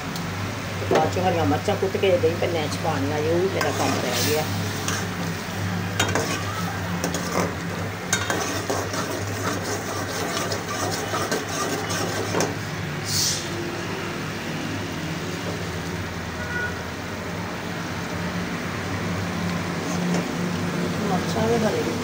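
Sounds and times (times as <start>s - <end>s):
food sizzling: 0.0s - 22.0s
ladle scraping metal pot: 3.4s - 5.3s, 6.0s - 12.6s
brief hiss: 13.0s - 13.6s.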